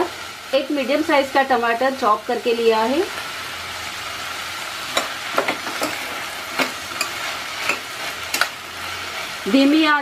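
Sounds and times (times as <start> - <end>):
vegetables sizzling in oil: 0.0 - 10.0
spatula knocking and scraping pot: 4.9 - 8.6.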